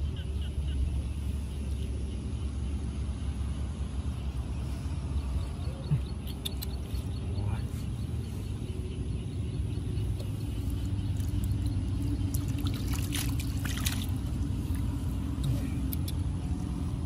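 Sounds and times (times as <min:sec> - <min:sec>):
hands splashing in water: 0:12.3 - 0:14.4
water pouring onto ground: 0:12.3 - 0:14.4.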